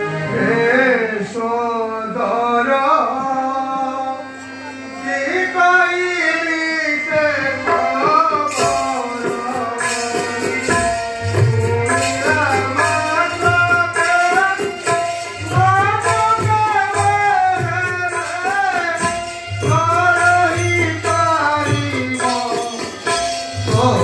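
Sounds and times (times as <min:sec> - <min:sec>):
person singing: 0:00.2 - 0:24.0
hand drums: 0:07.7 - 0:24.0.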